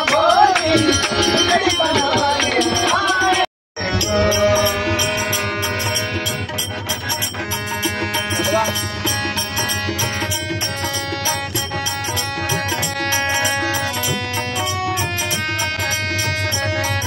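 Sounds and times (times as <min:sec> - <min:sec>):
person singing: 0:00.0 - 0:06.0
harmonium chords: 0:00.0 - 0:17.0.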